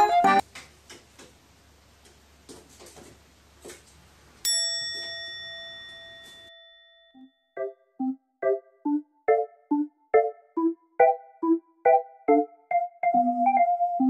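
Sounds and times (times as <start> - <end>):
bright bell-like chime: 4.4 - 7.5.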